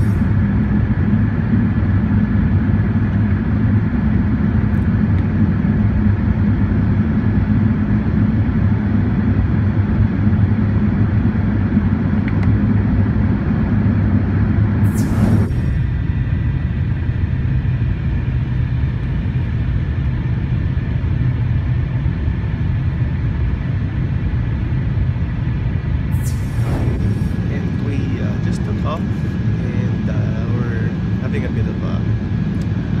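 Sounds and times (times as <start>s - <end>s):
rushing airflow: 0.0s - 0.7s, 14.8s - 16.6s, 26.1s - 30.1s
jet engines rumbling: 0.0s - 33.0s.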